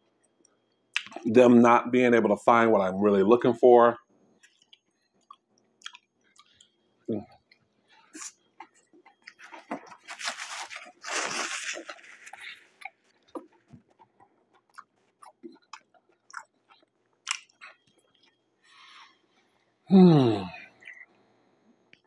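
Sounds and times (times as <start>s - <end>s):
person chewing crunchy food: 4.4s - 19.0s.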